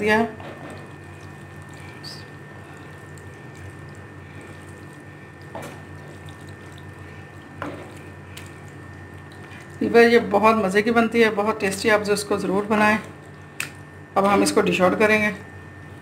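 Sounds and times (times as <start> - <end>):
steady background hum: 0.0 - 16.0
spatula squelching in pasta sauce: 1.0 - 9.9.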